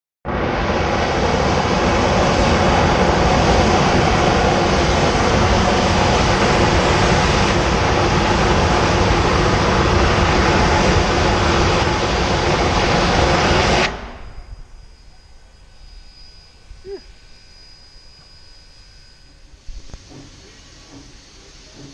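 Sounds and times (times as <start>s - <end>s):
steam hissing from locomotive: 0.4s - 21.9s.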